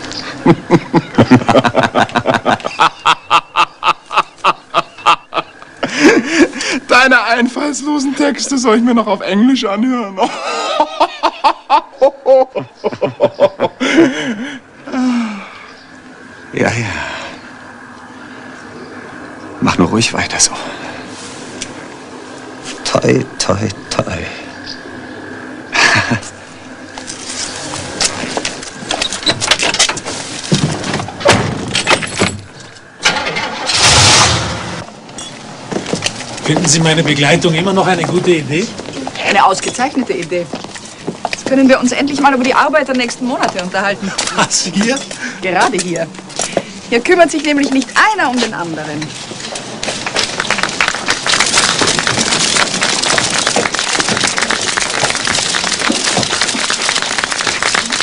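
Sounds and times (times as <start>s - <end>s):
car engine starting: 33.0s - 35.0s
clicks and rattles: 49.0s - 58.0s
crowd applauding: 49.8s - 58.0s.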